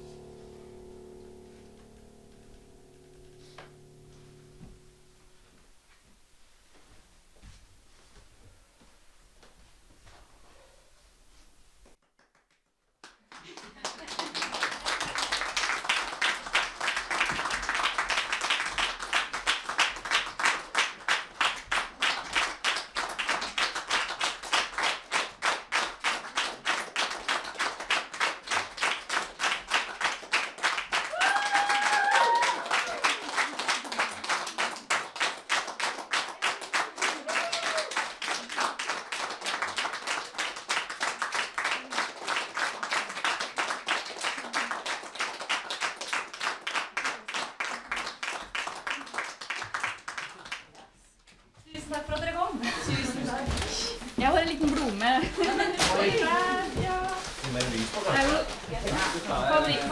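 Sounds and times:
audience clapping in rhythm: 12.0 - 51.0, 51.8 - 59.9.

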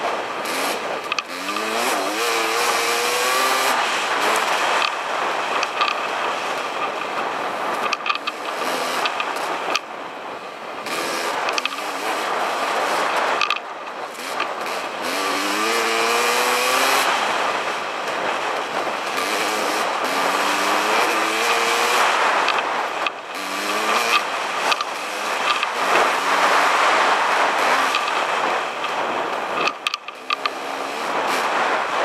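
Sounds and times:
dirt bike engine accelerating: 0.0 - 32.0.

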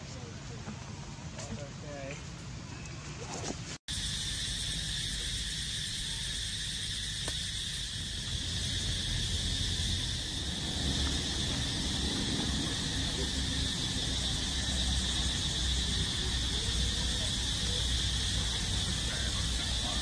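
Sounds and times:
insects chorus drone: 3.9 - 20.0
low rumble: 7.8 - 19.8.

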